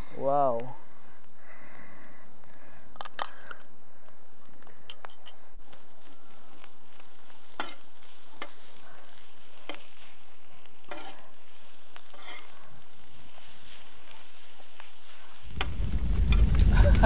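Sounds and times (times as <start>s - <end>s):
food sizzling in a hot pan: 5.6s - 17.0s
metal spatula scraping and tapping: 7.0s - 8.7s, 9.6s - 10.1s, 10.7s - 11.3s, 11.9s - 12.6s.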